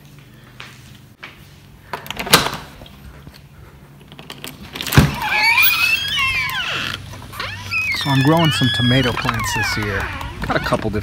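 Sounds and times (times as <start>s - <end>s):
house door unlatched and opened: 4.2s - 11.0s.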